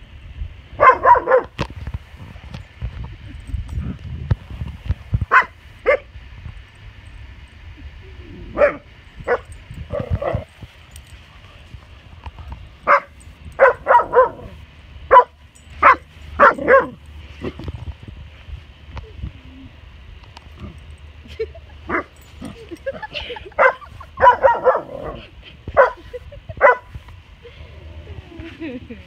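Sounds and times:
dog barking: 0.8 - 1.5, 5.3 - 6.1, 12.9 - 14.5, 15.1 - 17.0, 23.6 - 25.2, 25.8 - 26.0, 26.6 - 26.9.

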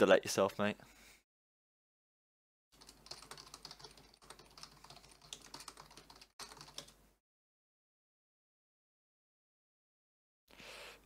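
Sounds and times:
typing on computer keyboard: 2.8 - 7.0.

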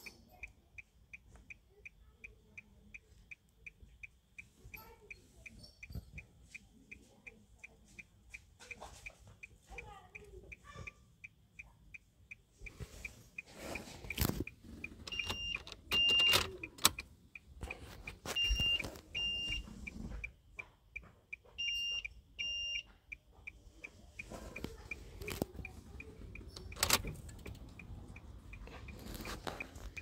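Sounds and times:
faint steady ticking: 0.0 - 30.0
short electronic beeps: 12.6 - 16.8, 18.1 - 20.0, 21.3 - 22.9, 25.9 - 30.0
key turning in ignition: 14.0 - 18.2, 26.0 - 30.0.

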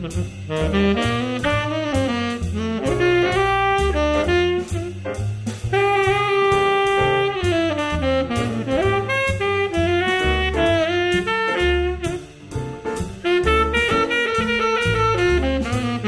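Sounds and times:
upbeat jazz tune: 0.0 - 16.0.

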